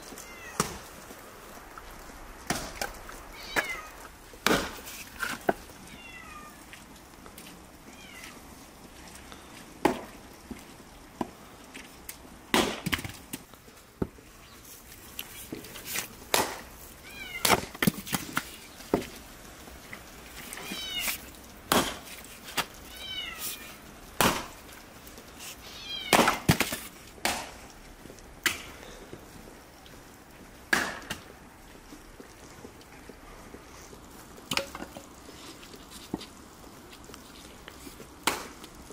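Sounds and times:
cat meowing: 0:00.1 - 0:00.9, 0:03.2 - 0:04.0, 0:05.8 - 0:06.8, 0:07.8 - 0:08.4, 0:17.0 - 0:17.5, 0:20.6 - 0:21.3, 0:22.8 - 0:23.8, 0:25.6 - 0:26.3
axe chopping firewood: 0:04.4 - 0:05.6, 0:09.8 - 0:10.1, 0:12.5 - 0:13.2, 0:16.3 - 0:16.7, 0:21.7 - 0:22.1, 0:24.2 - 0:24.6, 0:26.1 - 0:27.6, 0:30.7 - 0:31.3, 0:38.2 - 0:38.5.

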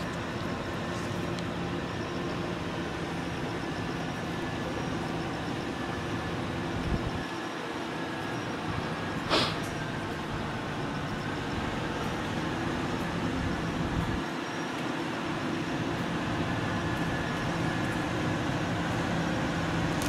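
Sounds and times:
traffic noise: 0:00.0 - 0:20.0
vehicle engine idling: 0:00.0 - 0:20.0
short sharp noise: 0:09.3 - 0:09.8.

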